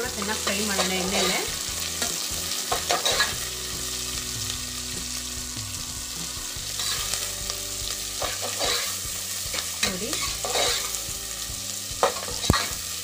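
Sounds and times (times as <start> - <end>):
onions sizzling in hot oil: 0.0 - 13.0
metal ladle scraping pot: 0.8 - 3.4, 8.2 - 9.0, 10.2 - 11.0.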